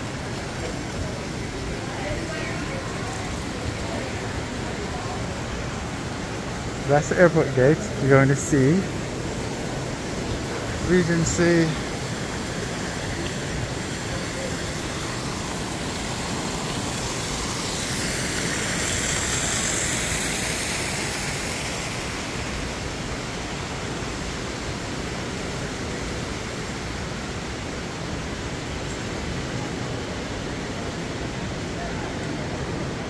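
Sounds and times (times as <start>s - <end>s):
crowd hubbub: 0.0s - 21.5s
fountain water splashing: 0.0s - 33.0s.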